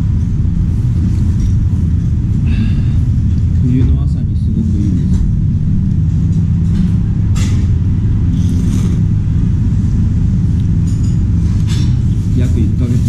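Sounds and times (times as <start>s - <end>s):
steady low rumble: 0.0s - 13.0s
noodle slurps: 8.3s - 9.0s.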